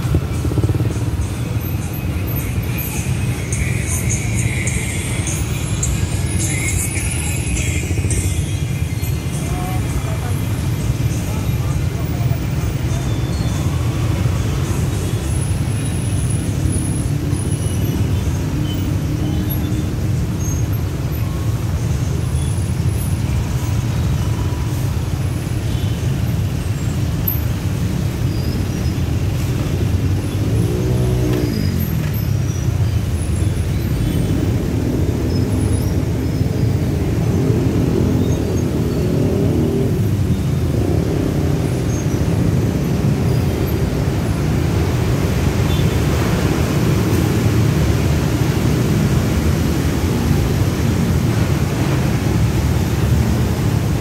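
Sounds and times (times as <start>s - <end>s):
idling traffic engines rumbling: 0.0s - 54.0s.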